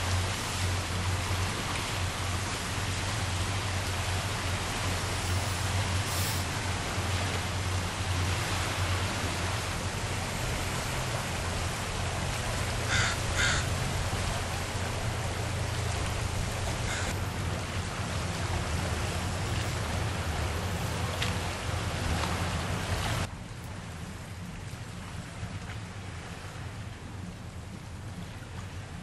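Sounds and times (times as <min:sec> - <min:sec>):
bird calls: 0:12.9 - 0:13.7.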